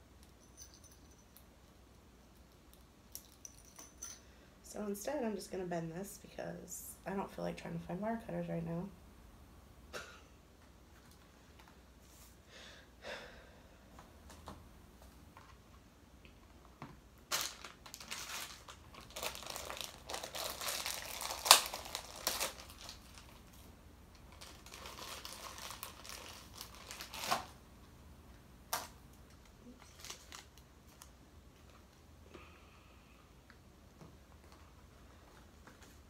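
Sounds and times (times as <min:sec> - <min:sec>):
plastic and tinsel rustling: 0:17.3 - 0:23.7, 0:24.3 - 0:27.5, 0:29.6 - 0:31.0.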